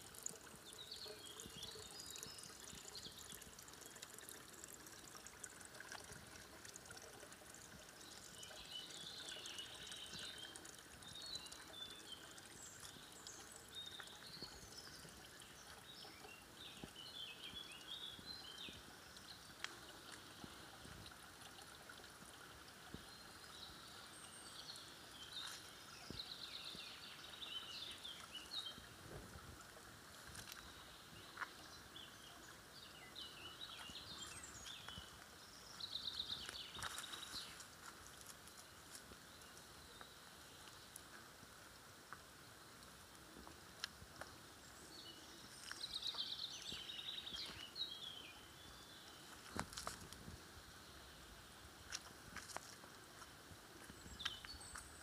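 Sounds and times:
songbirds chirping: 0.0s - 55.0s
water trickling: 0.0s - 55.0s.

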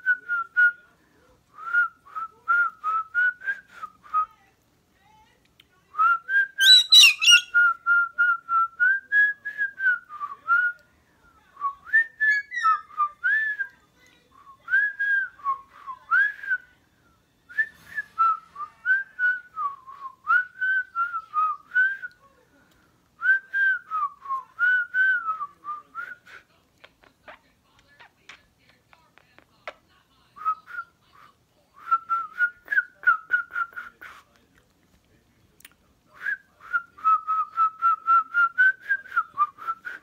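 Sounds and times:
cockatoo whistling: 6.6s - 7.7s, 12.0s - 13.4s.

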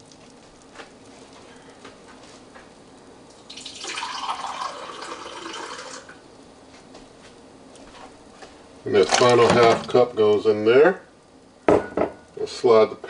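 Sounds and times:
water pouring: 3.4s - 6.2s.

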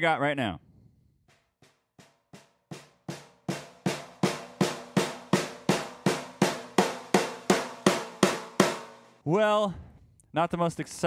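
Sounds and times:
snare drum struck with sticks: 1.6s - 9.2s.

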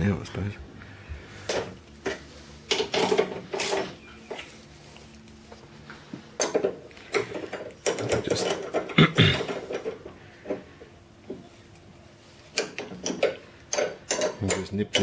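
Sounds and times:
spanners clicking and clinking: 6.4s - 10.6s, 12.5s - 15.0s.

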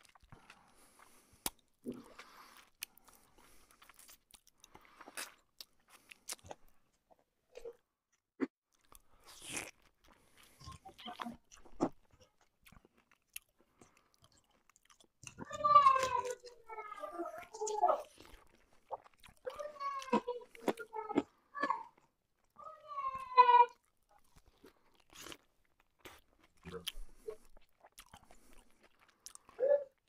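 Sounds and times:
chewing and mouth sounds: 0.0s - 7.8s, 8.7s - 22.6s, 23.7s - 30.0s.

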